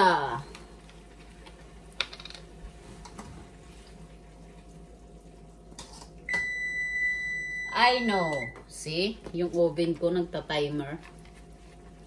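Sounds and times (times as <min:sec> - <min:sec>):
oven timer beep: 0:06.3 - 0:08.6.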